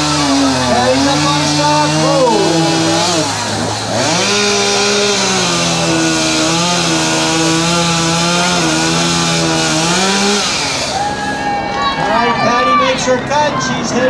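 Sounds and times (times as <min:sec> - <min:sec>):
chainsaw cutting log: 0:00.0 - 0:11.1.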